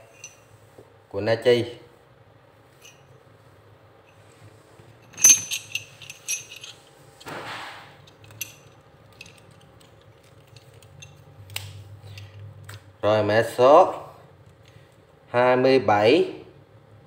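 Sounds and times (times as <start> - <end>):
metal tool bits clinking: 0.0 - 0.4, 5.0 - 6.9, 8.0 - 11.3.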